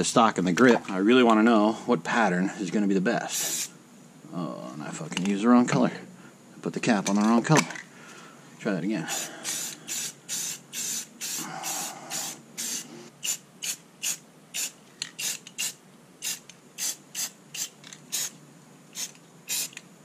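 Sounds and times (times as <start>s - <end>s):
spray paint can hissing: 3.3s - 3.7s, 9.1s - 19.8s.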